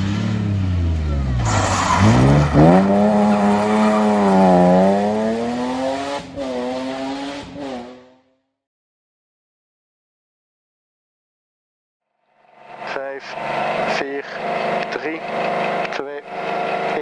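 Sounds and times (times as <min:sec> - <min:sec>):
car engine revving hard: 0:00.0 - 0:08.3, 0:12.7 - 0:17.0.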